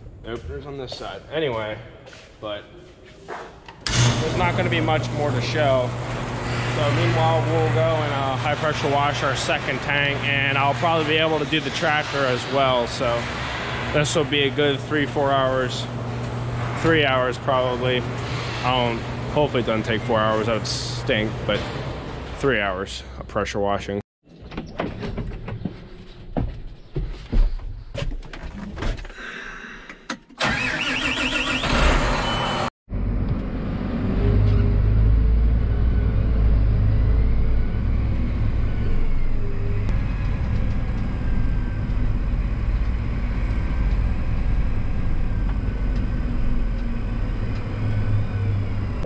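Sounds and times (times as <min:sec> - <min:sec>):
tractor diesel engine running: 0:03.9 - 0:22.3, 0:30.4 - 0:49.0.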